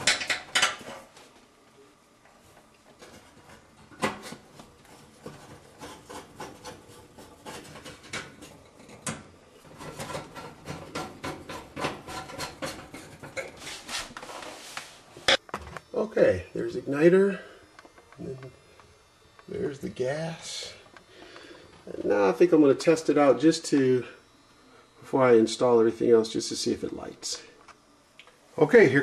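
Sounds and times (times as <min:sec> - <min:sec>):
screwdriver scraping on sheet metal: 0:04.2 - 0:13.7.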